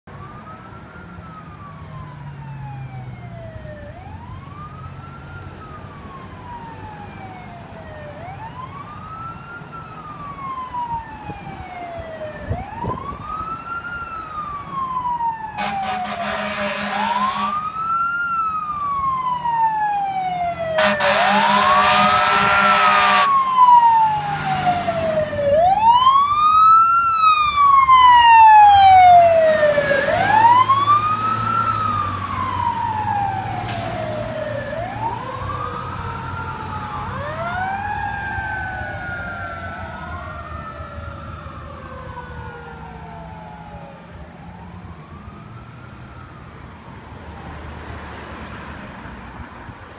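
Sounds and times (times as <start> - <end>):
fire engine siren wailing: 0.1 - 49.9
air horn blasts: 15.6 - 17.6, 20.8 - 23.4.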